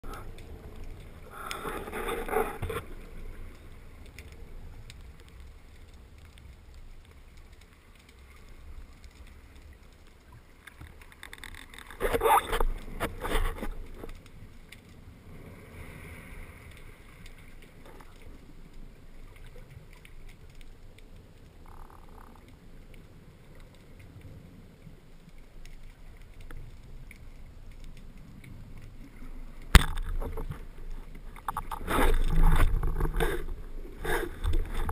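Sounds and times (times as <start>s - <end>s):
underwater rush of moving water: 0.0s - 34.9s
bursts of water noise: 25.5s - 34.9s.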